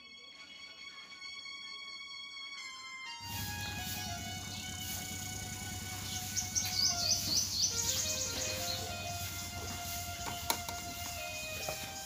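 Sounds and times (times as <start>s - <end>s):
music with long held notes: 0.0s - 12.0s
low rumble of field noise: 3.3s - 11.5s.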